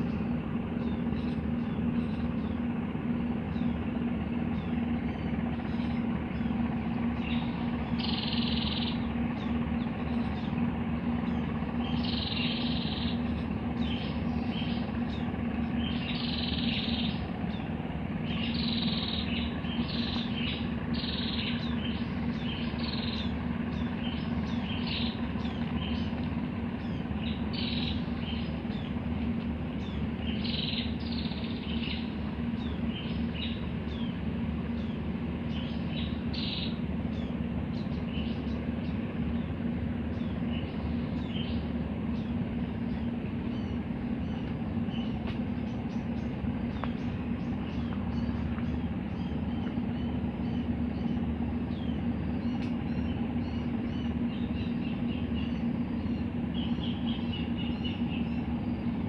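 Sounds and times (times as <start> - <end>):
birds chirping: 0.0 - 59.0
steady low hum: 0.0 - 59.0.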